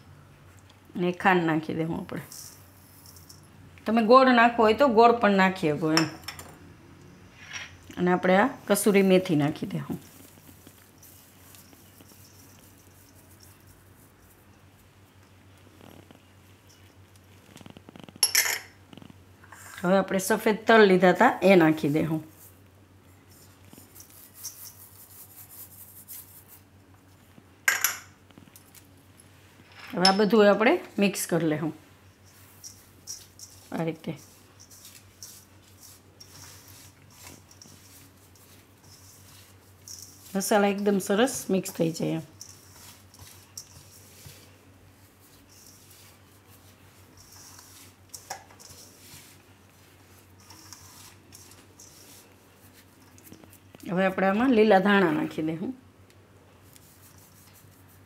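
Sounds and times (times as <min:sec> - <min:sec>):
seeds pattering in a steel bowl: 0:01.9 - 0:04.0, 0:08.6 - 0:18.3, 0:21.1 - 0:26.7, 0:29.8 - 0:55.5.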